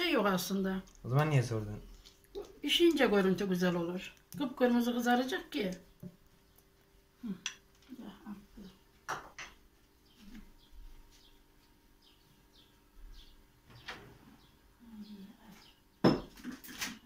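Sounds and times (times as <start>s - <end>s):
faint bird chirps: 9.9s - 16.0s.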